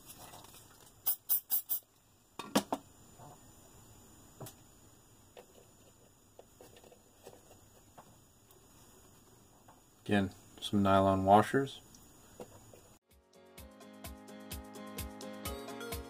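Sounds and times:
aerosol spray can hissing: 0:01.0 - 0:01.8.

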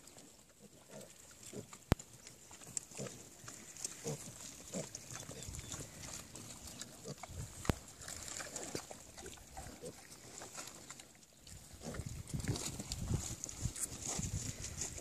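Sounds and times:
piglets grunting: 0:02.9 - 0:08.9.

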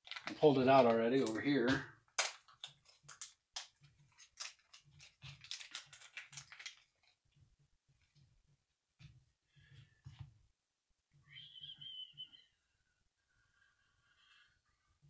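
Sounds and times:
rustling of small parts: 0:00.0 - 0:08.3.

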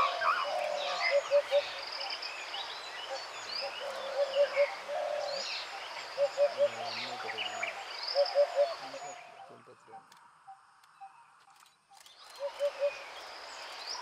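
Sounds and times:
birds chirping and whistling: 0:00.0 - 0:05.6, 0:06.2 - 0:09.7.

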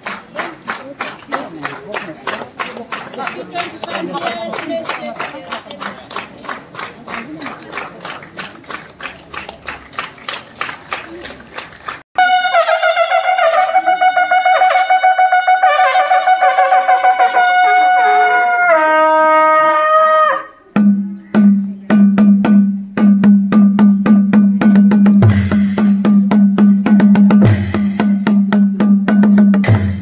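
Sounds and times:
long curved horn blast: 0:12.2 - 0:20.5
drums beaten with sticks: 0:20.7 - 0:30.0.

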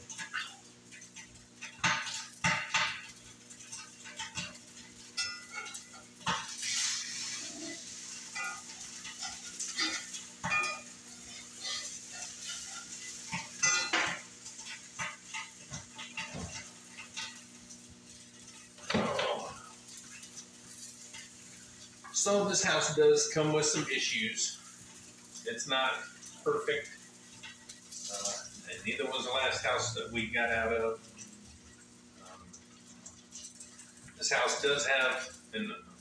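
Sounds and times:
metal utensil scraping frying pan: 0:00.0 - 0:23.0.

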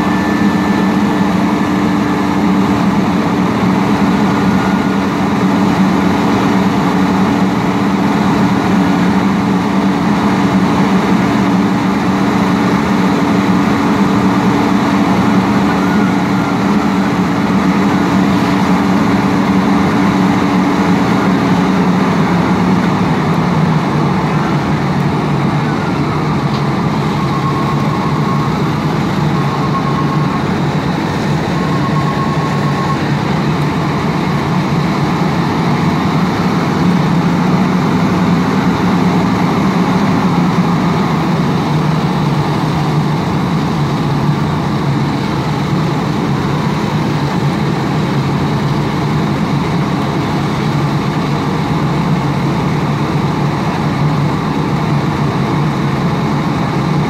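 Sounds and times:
fire truck engine running: 0:00.0 - 0:57.0
short electronic beeps: 0:27.0 - 0:33.2.

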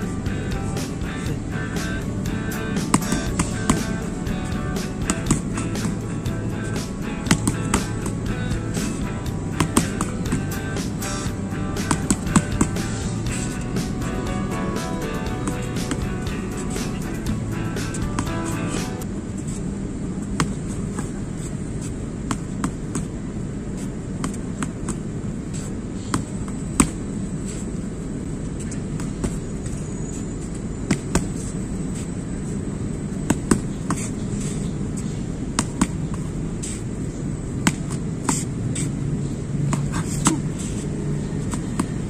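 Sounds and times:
low background rumble: 0:00.0 - 0:42.0
boxing gloves smacking mitts: 0:02.7 - 0:06.1, 0:06.8 - 0:13.7, 0:30.9 - 0:31.4, 0:35.6 - 0:36.8, 0:37.6 - 0:38.9.

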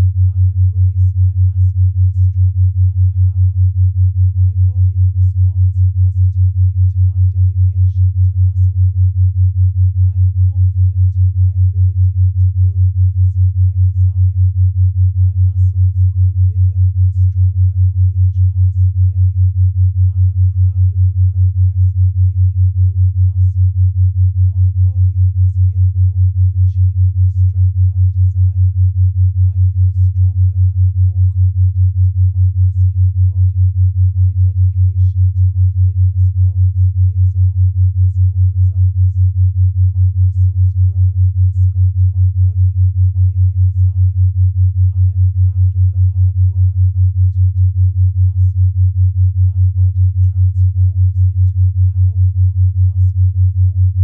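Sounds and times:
pulsing low pure tone: 0:00.0 - 0:54.0.

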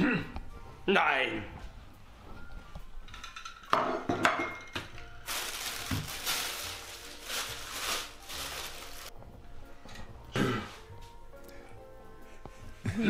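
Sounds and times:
dishes clinking: 0:03.0 - 0:05.1
plastic bag crinkling: 0:05.2 - 0:09.1.

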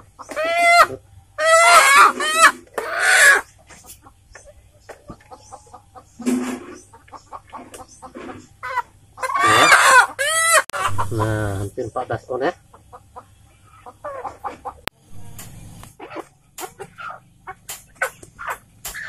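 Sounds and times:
chickens squawking and clucking: 0:00.0 - 0:19.0.

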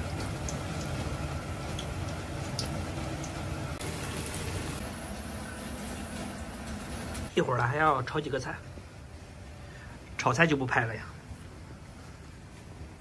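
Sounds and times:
hot oil sizzling and popping: 0:00.0 - 0:07.8
steady low hum: 0:00.0 - 0:13.0.

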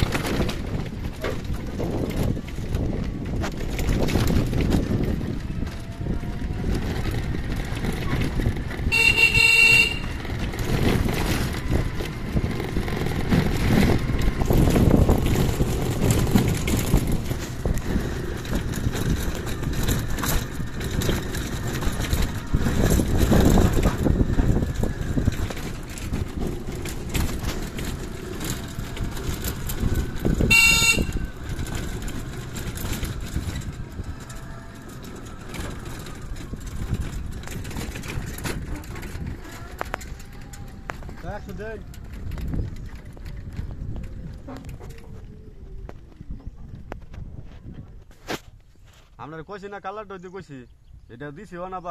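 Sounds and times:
wind on microphone: 0:00.0 - 0:48.9
vehicle ride rumble: 0:00.0 - 0:51.9
horn toots: 0:08.7 - 0:11.6, 0:29.9 - 0:32.0.

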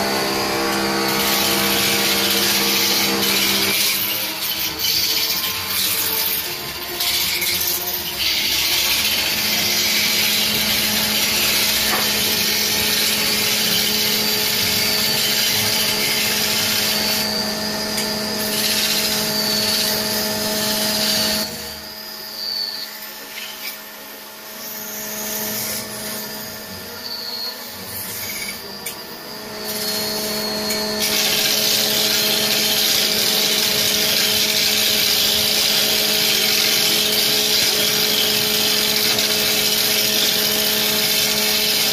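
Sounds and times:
tool scraping spinning wood: 0:00.0 - 0:21.6, 0:29.3 - 0:41.9
lathe motor hum: 0:00.0 - 0:22.0.

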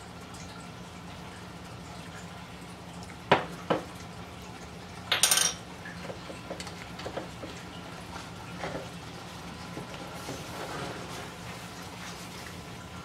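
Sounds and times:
plastic spoon clattering on tiles: 0:05.1 - 0:05.6.

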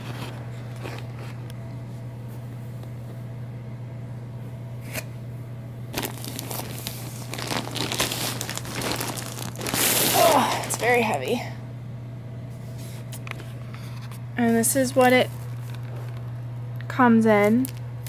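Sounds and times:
steady low hum: 0:00.0 - 0:18.0
plastic bags crinkling: 0:05.9 - 0:11.4, 0:15.0 - 0:16.3, 0:17.5 - 0:17.8.

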